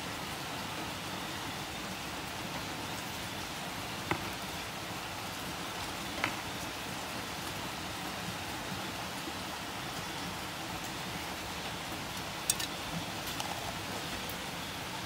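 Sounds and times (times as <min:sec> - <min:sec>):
steady rain-like hiss: 0:00.0 - 0:15.0.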